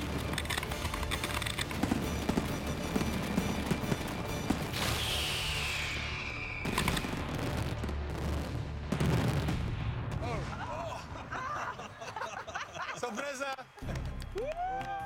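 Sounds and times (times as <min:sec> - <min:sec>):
fireworks crackling: 0:00.0 - 0:10.6
background music: 0:00.0 - 0:15.0
firework bangs: 0:01.6 - 0:10.8
falling firework whistle: 0:04.5 - 0:07.7.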